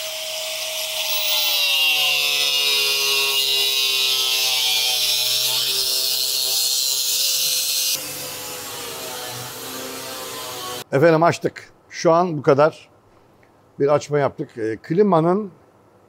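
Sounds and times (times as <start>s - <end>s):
angle grinder cutting metal: 0.0s - 10.9s.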